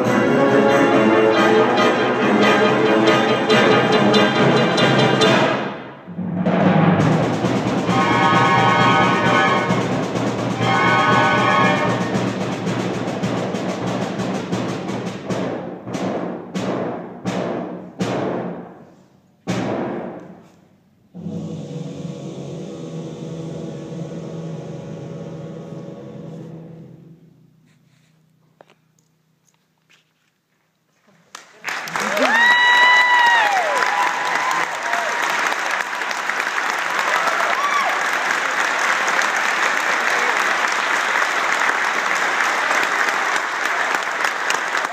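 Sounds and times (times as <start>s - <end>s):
wind band playing: 0.0s - 14.7s, 21.2s - 27.3s.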